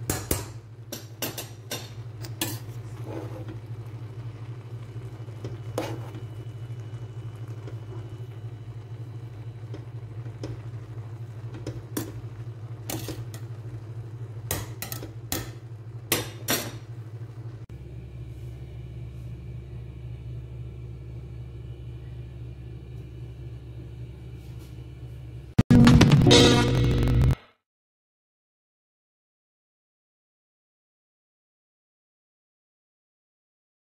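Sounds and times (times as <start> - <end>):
steady low hum: 0.0 - 27.4
spatula scraping and knocking pot: 1.0 - 3.7, 5.4 - 6.3, 12.8 - 13.5.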